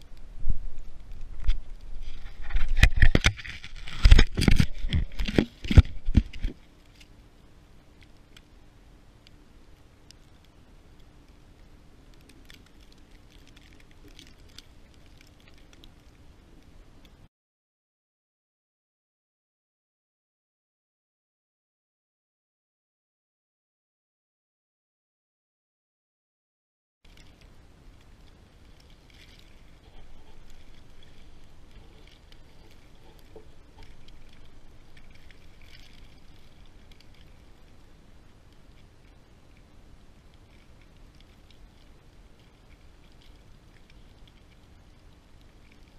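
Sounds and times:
wind rumbling on microphone: 0:00.0 - 0:06.8
light ticks and crackles: 0:00.0 - 0:17.3, 0:27.1 - 0:45.9.

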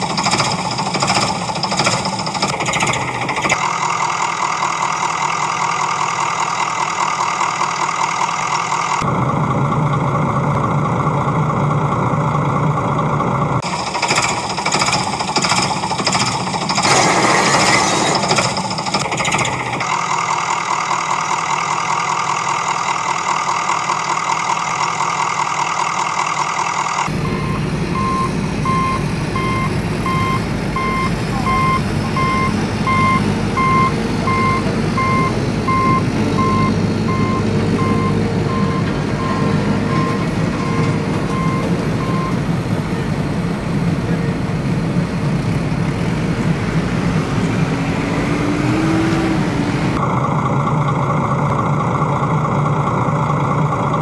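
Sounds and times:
reversing alarm beeping: 0:00.0 - 0:09.0, 0:13.6 - 0:20.8, 0:23.7 - 0:42.5
heavy vehicle engine running: 0:00.0 - 0:54.0.

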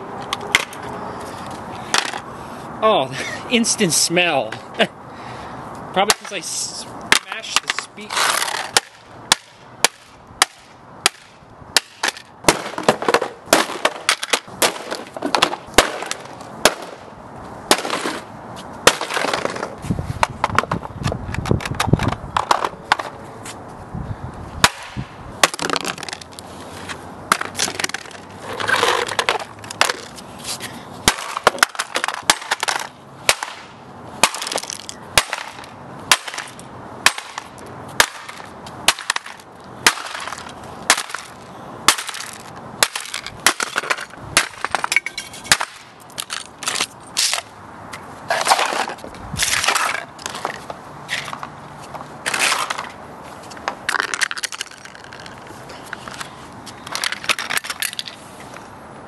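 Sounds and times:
hammer smashing plastic: 0:18.9 - 0:19.7, 0:24.6 - 0:26.2, 0:31.1 - 0:33.6, 0:34.2 - 0:36.5.

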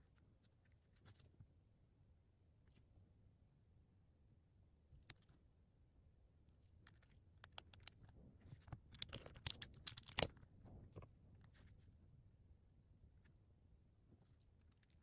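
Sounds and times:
sharp plastic clicks and snaps: 0:06.8 - 0:10.4
plastic cube handling: 0:06.9 - 0:10.4.

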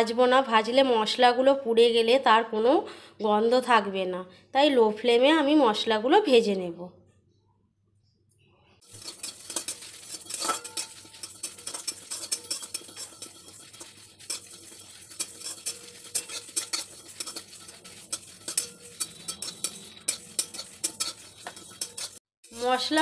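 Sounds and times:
metal spatula scraping spices in pan: 0:08.8 - 0:23.0.

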